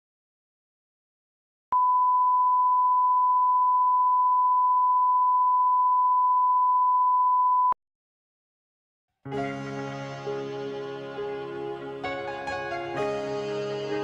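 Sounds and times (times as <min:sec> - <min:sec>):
steady test tone beep: 0:01.8 - 0:07.8.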